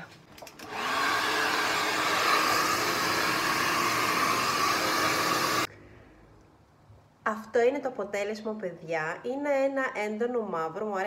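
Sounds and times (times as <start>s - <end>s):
hair dryer blowing: 0.6s - 5.7s.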